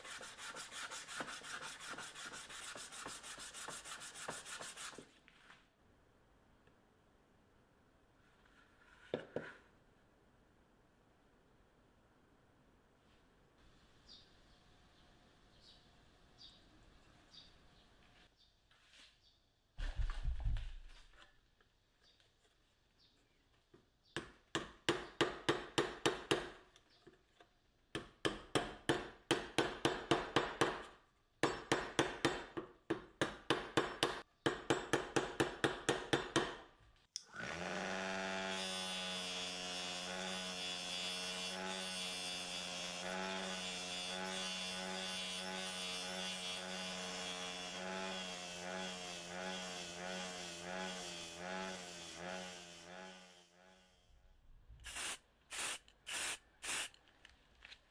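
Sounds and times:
bench grinder grinding metal: 37.4s - 53.8s.

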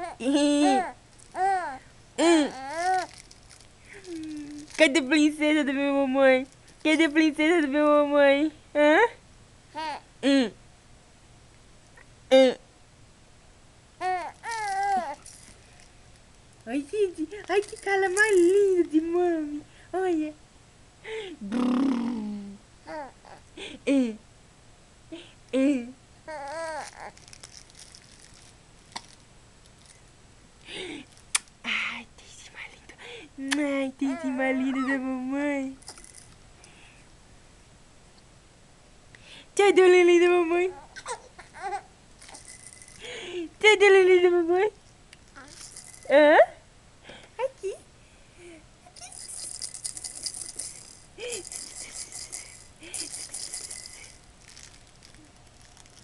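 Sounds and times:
baby cooing: 0.0s - 3.1s, 14.0s - 15.2s, 21.5s - 23.4s, 26.3s - 27.2s, 40.7s - 41.9s
faint rustling and crinkling: 0.7s - 1.8s, 2.5s - 5.2s, 14.1s - 19.0s, 26.4s - 30.1s, 48.9s - 56.0s
toy rattle shaken: 2.5s - 5.2s, 6.4s - 7.3s, 14.0s - 18.9s, 26.4s - 29.2s, 29.8s - 30.0s, 35.7s - 36.4s, 42.2s - 43.2s, 45.2s - 46.2s, 48.9s - 56.0s.

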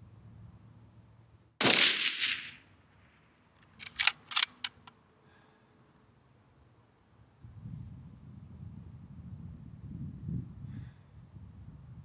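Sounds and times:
rifle shot: 1.6s - 3.2s
sharp clicks: 3.6s - 5.0s.

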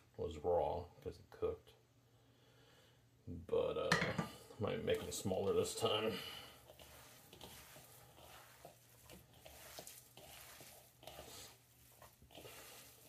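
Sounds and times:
hands kneading mixture: 4.7s - 13.0s.

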